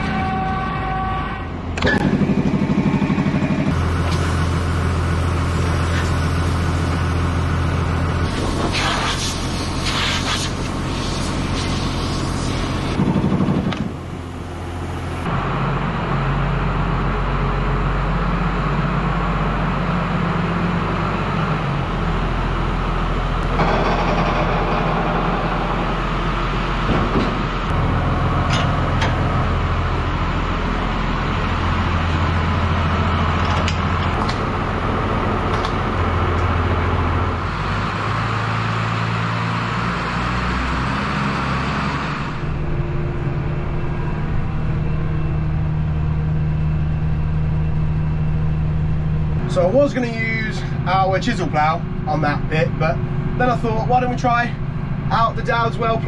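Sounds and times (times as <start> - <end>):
tractor engines running: 1.5 - 56.0.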